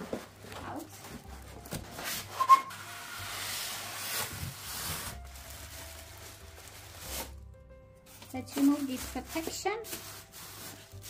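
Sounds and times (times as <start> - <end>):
cardboard and foam scraping: 0.0 - 7.4, 8.1 - 11.0
sharp squeak: 2.3 - 3.0.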